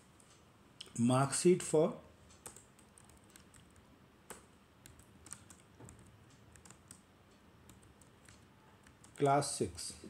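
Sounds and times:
faint keyboard typing: 2.2 - 10.0.

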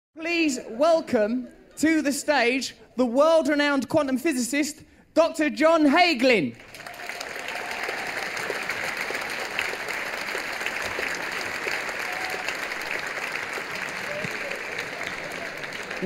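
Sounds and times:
large audience applauding: 6.6 - 16.0.

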